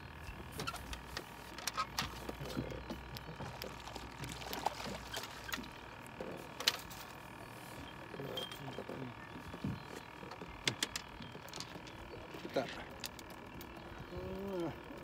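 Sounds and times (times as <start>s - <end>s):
water splashing beside boat: 1.4s - 5.9s
fishing gear clicks and knocks: 9.5s - 13.8s.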